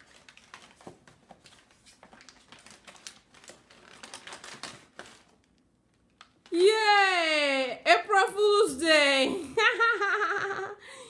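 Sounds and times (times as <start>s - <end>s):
paper bag rustling and crackling: 0.0s - 6.6s.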